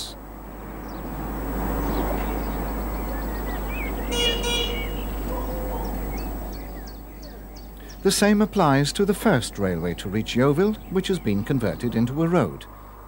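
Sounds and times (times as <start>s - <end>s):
road traffic: 0.0s - 13.0s
vehicle passing: 0.0s - 13.0s
high bird chirps: 1.8s - 8.2s.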